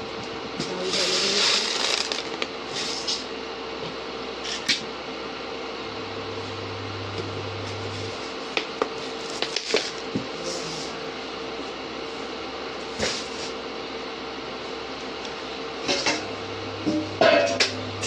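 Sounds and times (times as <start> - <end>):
steady hum: 0.0 - 18.0
metal pots and utensils clinking: 16.9 - 17.8.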